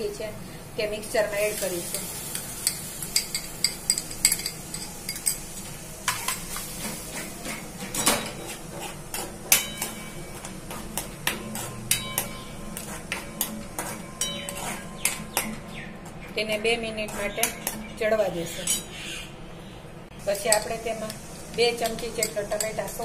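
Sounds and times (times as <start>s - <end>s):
light sizzle: 0.0s - 15.2s, 20.1s - 23.0s.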